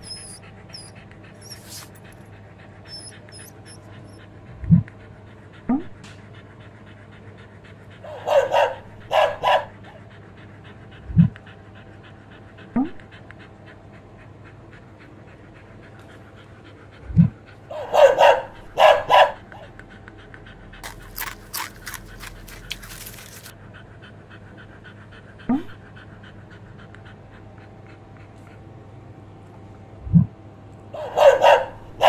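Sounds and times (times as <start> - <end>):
dog panting: 0.0 - 30.3, 31.0 - 32.0
dog barking: 8.0 - 9.8, 17.7 - 19.6, 30.9 - 32.0.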